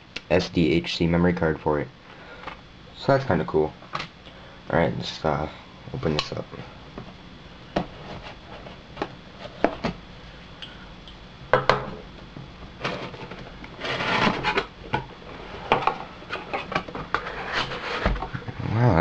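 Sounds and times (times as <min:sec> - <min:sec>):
cardboard rustling: 0:12.8 - 0:14.7.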